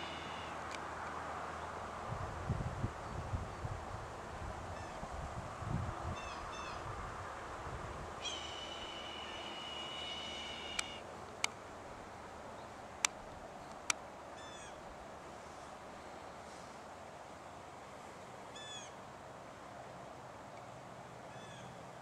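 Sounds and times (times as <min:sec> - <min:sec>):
birds calling: 0:00.0 - 0:00.6, 0:08.2 - 0:11.0
long high whistle: 0:08.4 - 0:10.8.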